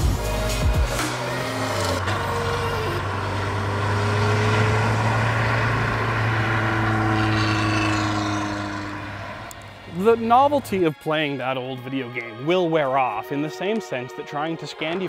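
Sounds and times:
car engine droning: 0.0 - 12.0.

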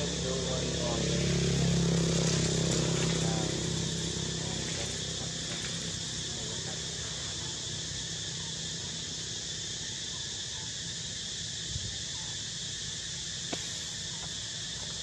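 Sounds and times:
insect chorus: 0.0 - 15.0.

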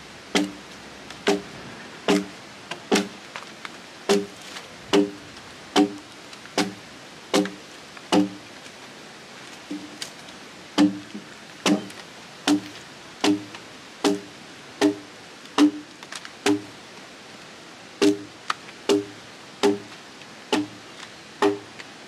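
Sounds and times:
axe chopping into log: 0.4 - 0.6, 1.2 - 1.5, 2.1 - 2.3, 2.9 - 3.1, 4.1 - 5.2, 5.8 - 6.0, 6.6 - 8.4, 10.8 - 11.9, 12.5 - 15.0, 15.6 - 15.8, 18.0 - 18.3, 18.9 - 19.9, 20.5 - 20.8, 21.4 - 21.6.

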